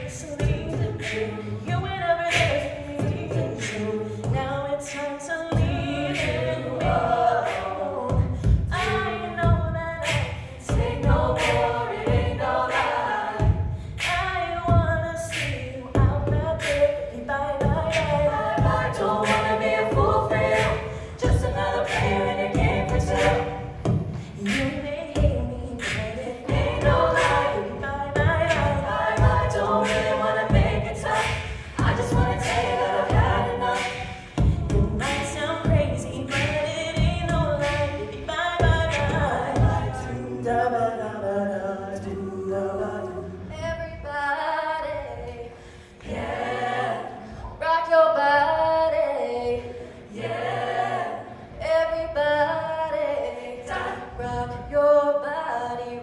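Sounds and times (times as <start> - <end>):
a cappella group singing: 0.0 - 56.0
steady vocal beat: 0.0 - 56.0.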